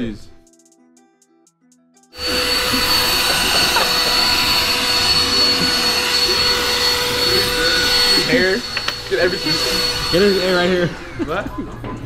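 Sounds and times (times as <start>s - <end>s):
handheld vacuum cleaner whine: 2.2s - 11.3s.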